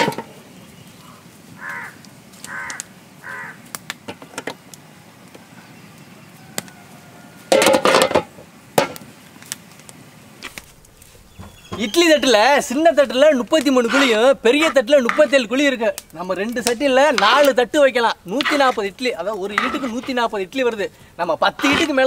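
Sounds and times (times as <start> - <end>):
bird calling: 0.3 - 3.7, 11.1 - 17.5
metal lids knocking against pots: 19.5 - 20.2.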